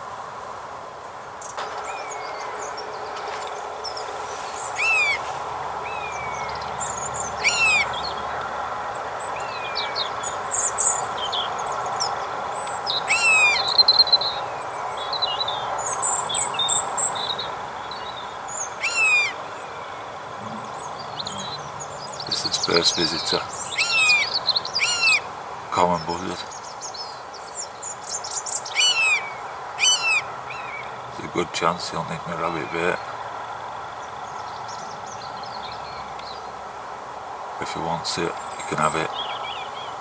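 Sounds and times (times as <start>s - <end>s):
small birds chirping: 1.0s - 40.0s
faint falling bird calls: 1.4s - 8.6s
loud sharp falling bird call: 1.6s - 6.4s, 7.4s - 8.0s, 13.1s - 13.7s, 18.8s - 19.5s, 20.4s - 26.4s, 28.7s - 30.7s.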